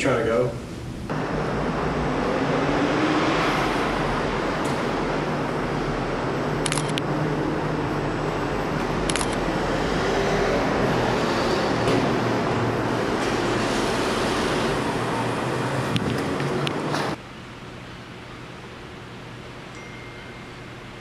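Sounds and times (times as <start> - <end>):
low rumble and hiss: 0.0 - 2.5.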